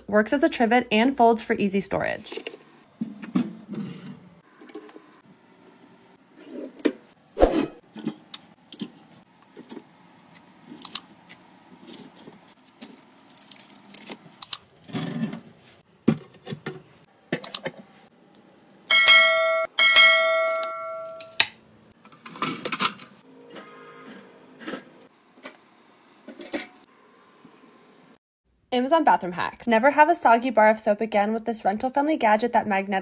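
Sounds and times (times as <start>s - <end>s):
bell-like chime: 18.9s - 21.4s.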